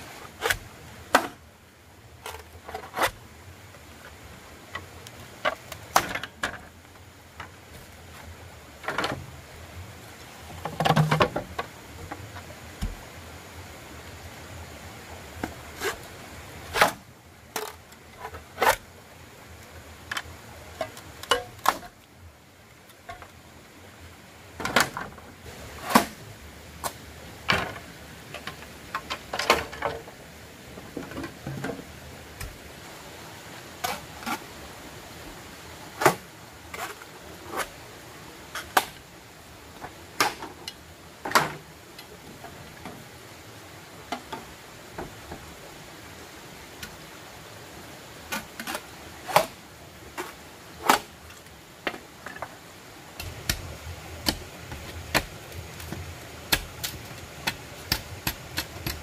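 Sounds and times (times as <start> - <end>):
faint hiss: 0.0 - 59.0
knocks and clicks of wood and tools: 4.8 - 6.7, 10.6 - 13.0, 24.6 - 25.2, 26.8 - 30.2, 39.8 - 42.1, 53.2 - 59.0.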